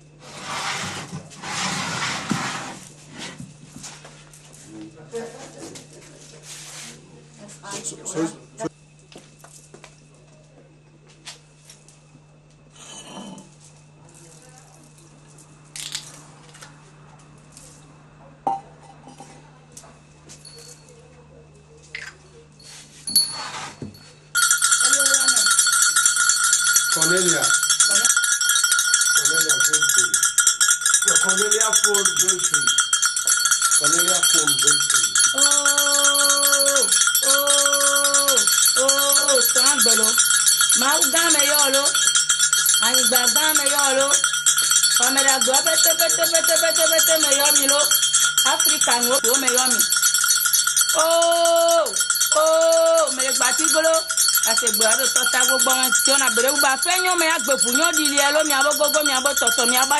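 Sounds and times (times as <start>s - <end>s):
high jingling percussion: 20.4s - 21.0s, 22.6s - 59.9s
small bell ringing rapidly: 22.7s - 23.4s, 24.0s - 59.9s.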